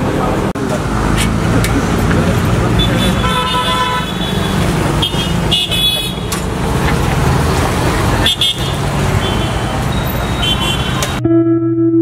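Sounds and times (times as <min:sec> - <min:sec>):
road traffic: 0:00.0 - 0:11.2
vehicle horns honking: 0:02.7 - 0:06.4, 0:08.0 - 0:11.2.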